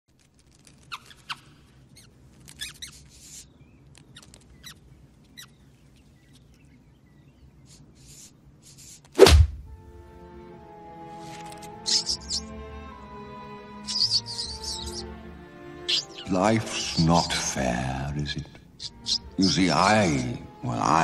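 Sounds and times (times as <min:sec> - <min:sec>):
cartoon mouse squeaks: 0:00.8 - 0:03.4, 0:11.9 - 0:12.4, 0:13.9 - 0:15.0, 0:15.9 - 0:16.3, 0:18.8 - 0:19.3
scratchy scurrying noises: 0:11.2 - 0:12.4.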